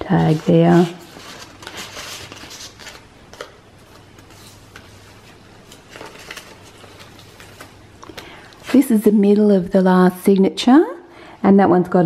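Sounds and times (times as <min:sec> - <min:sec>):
paper pages rustling: 0:00.0 - 0:09.2.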